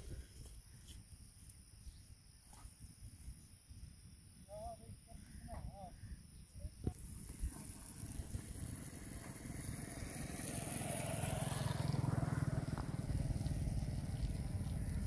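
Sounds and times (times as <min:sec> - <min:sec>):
vehicle engine approaching: 0:07.5 - 0:15.0.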